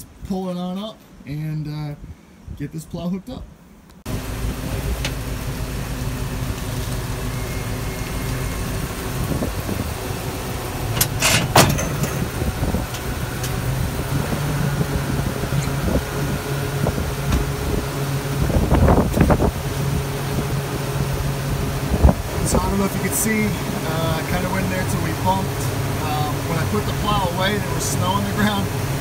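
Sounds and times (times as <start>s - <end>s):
truck engine running at low speed: 4.1s - 29.0s
sharp metal knocks: 11.0s - 13.6s.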